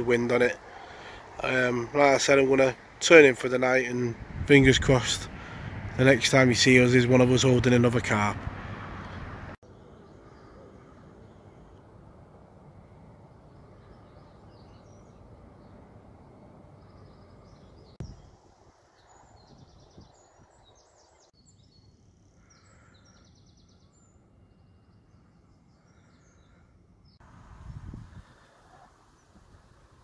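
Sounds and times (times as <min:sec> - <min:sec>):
faint birdsong: 0:00.0 - 0:08.3, 0:09.0 - 0:30.0
wind rumble on microphone: 0:04.1 - 0:06.0, 0:18.0 - 0:18.3, 0:19.0 - 0:20.9, 0:27.3 - 0:30.0.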